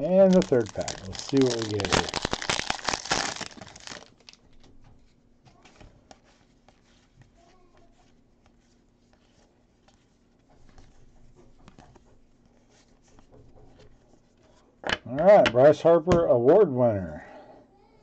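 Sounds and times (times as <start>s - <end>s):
cards rustling and flicking: 0.0s - 4.6s
foil wrapper crinkling: 0.0s - 4.7s.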